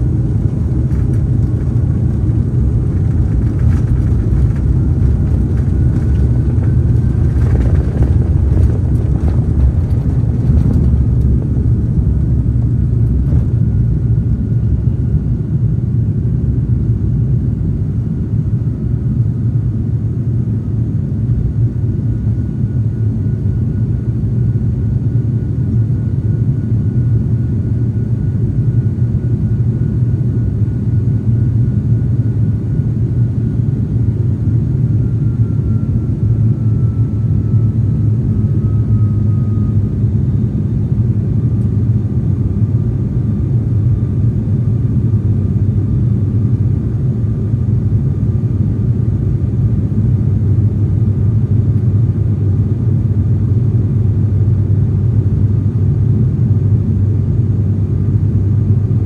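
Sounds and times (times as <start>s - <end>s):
turboprop cabin drone: 0.0s - 59.0s
faint high whine: 20.1s - 55.0s.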